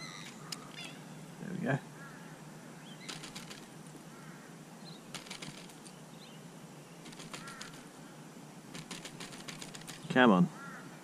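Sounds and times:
faint bird chirps: 0:00.0 - 0:08.3
rapid clicking bursts: 0:03.1 - 0:03.7, 0:05.1 - 0:05.9, 0:07.0 - 0:07.9, 0:08.7 - 0:10.2.

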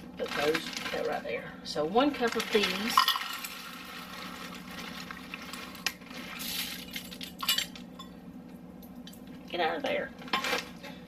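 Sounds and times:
beans rattling into a cup: 0:00.2 - 0:01.2, 0:02.1 - 0:07.5.

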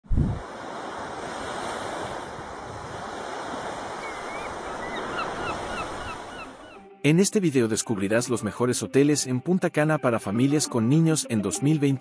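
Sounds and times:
ocean waves washing on beach: 0:00.1 - 0:06.6.

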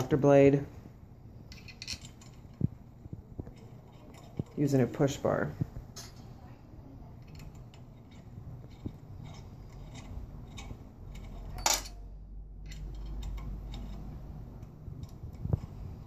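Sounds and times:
metal clatter: 0:01.5 - 0:05.0, 0:07.2 - 0:16.0.

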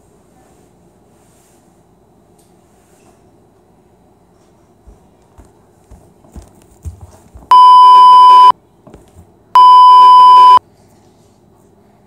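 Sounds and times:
socked footsteps on wet floor: 0:04.8 - 0:07.5
censor bleeps: 0:07.5 - 0:08.5, 0:09.6 - 0:10.6.

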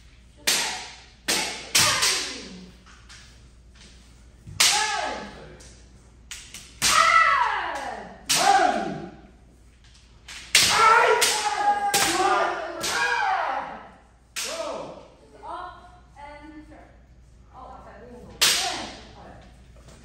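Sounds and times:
bamboo swords hitting armour: 0:00.4 - 0:02.5.

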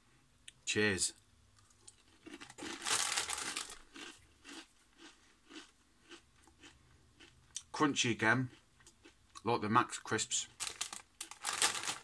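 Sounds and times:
crunchy chewing: 0:01.6 - 0:07.7.

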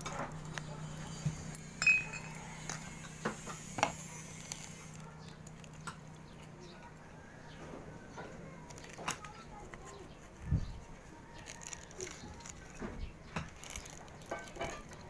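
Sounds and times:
tableware clinking on dishes: 0:01.6 - 0:03.6.

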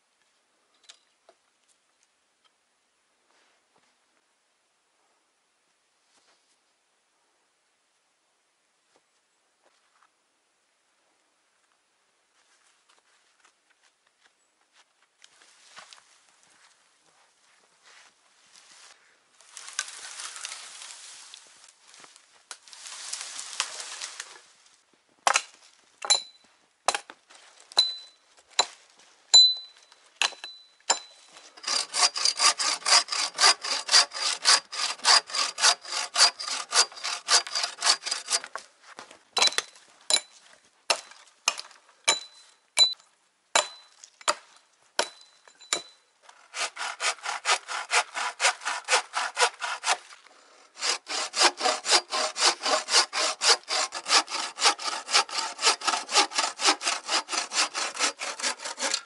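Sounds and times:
sharp saw strokes with metallic ring: 0:30.4 - 0:38.5, 0:50.8 - 0:59.0
bow saw rasping through log: 0:31.4 - 0:38.6, 0:46.3 - 0:59.0.

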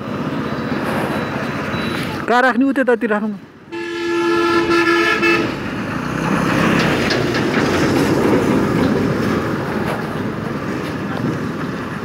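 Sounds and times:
street noise: 0:00.0 - 0:12.0
vehicle horn blast: 0:03.7 - 0:05.6.

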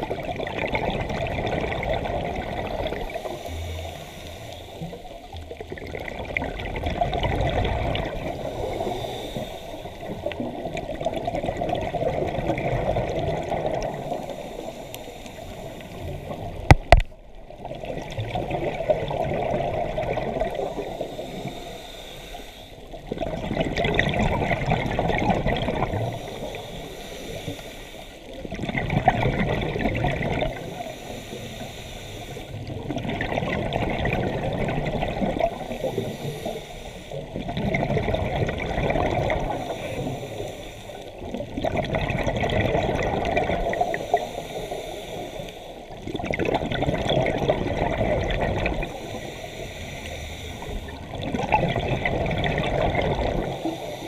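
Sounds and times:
exhaled bubbles gurgling: 0:00.0 - 0:22.1, 0:22.7 - 0:54.0
diver breathing through regulator: 0:02.8 - 0:05.1, 0:08.2 - 0:10.4, 0:13.8 - 0:16.9, 0:20.4 - 0:23.0, 0:25.8 - 0:28.4, 0:30.4 - 0:32.7, 0:35.3 - 0:37.4, 0:39.4 - 0:41.2, 0:43.6 - 0:46.0, 0:48.6 - 0:51.3, 0:53.3 - 0:54.0.

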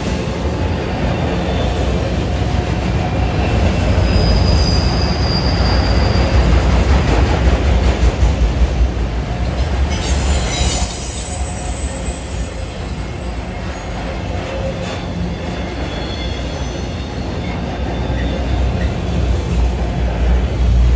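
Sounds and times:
train wheels rumbling on rail: 0:00.0 - 0:20.9
high wheel squeal: 0:03.1 - 0:06.5, 0:09.3 - 0:19.2.

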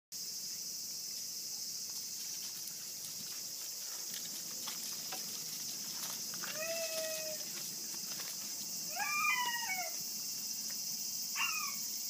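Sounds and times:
insects droning: 0:00.2 - 0:12.0
puppy paws clicking on gravel: 0:01.9 - 0:09.9.

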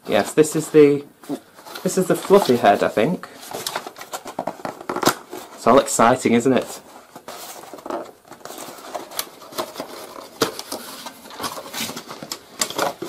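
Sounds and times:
cardboard rubbing and scraping: 0:06.6 - 0:13.0.

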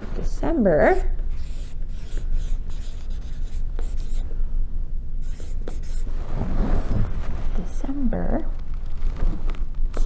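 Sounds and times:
steady low hum: 0:00.0 - 0:10.0
marker scratching on paper: 0:00.9 - 0:04.2, 0:05.2 - 0:06.1.

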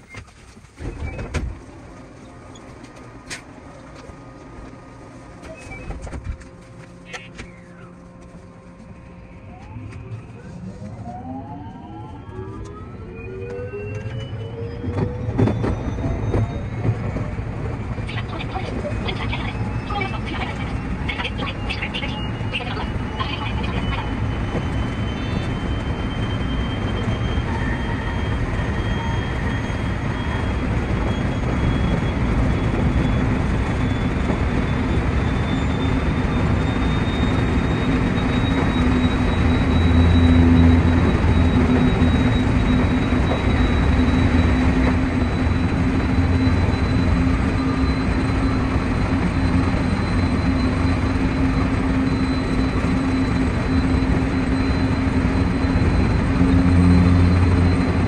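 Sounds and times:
low motor hum: 0:00.8 - 0:58.0
train wheels rumbling on rail: 0:13.4 - 0:58.0.

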